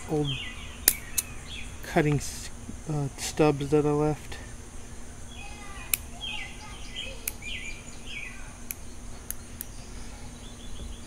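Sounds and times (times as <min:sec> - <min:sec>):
bird chirping: 0:00.0 - 0:11.0
pruning shears snipping: 0:00.8 - 0:01.3, 0:05.8 - 0:06.1.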